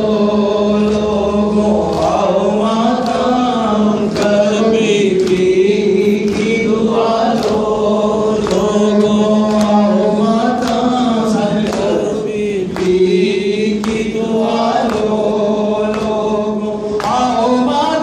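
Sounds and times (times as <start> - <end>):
voices chanting along: 0.0 - 18.0
man chanting lament into microphone: 8.3 - 18.0.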